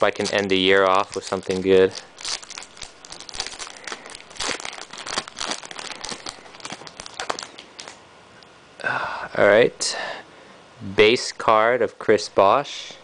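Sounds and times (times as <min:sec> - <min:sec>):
foil wrapper crinkling and tearing: 0:00.0 - 0:08.0.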